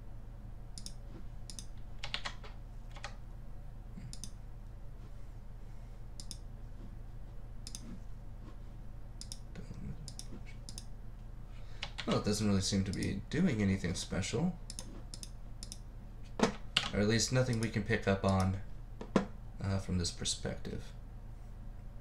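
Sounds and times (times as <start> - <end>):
low steady hum: 0.0 - 22.0
computer mouse clicking: 0.8 - 3.2, 4.1 - 4.4, 6.2 - 6.5, 7.6 - 7.9, 9.2 - 9.4, 10.1 - 10.9, 14.7 - 15.8.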